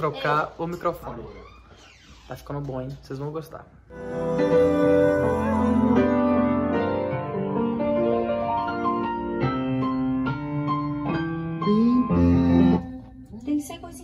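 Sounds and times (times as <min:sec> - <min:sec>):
piano melody over chords: 0:03.9 - 0:13.3.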